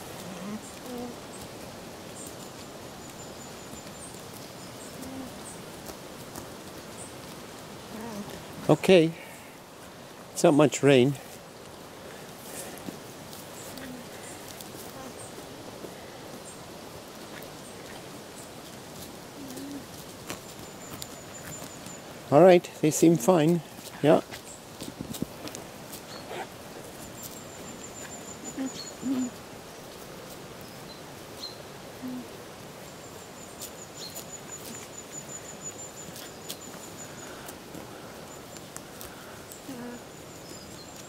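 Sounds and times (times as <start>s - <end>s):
alpaca humming: 0.0s - 1.2s, 4.9s - 5.4s, 7.9s - 8.4s, 13.7s - 15.2s, 19.4s - 19.9s, 25.4s - 26.6s, 27.6s - 29.4s, 32.0s - 32.4s, 39.6s - 40.1s
faint hiss: 0.0s - 41.0s.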